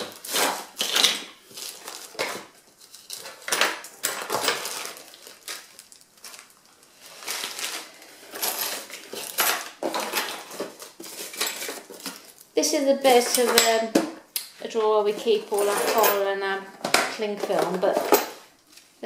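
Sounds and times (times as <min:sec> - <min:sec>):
plastic bags crinkling: 0:00.0 - 0:13.5
items clinking in a drawer: 0:03.1 - 0:05.1, 0:08.3 - 0:12.2, 0:15.1 - 0:18.5.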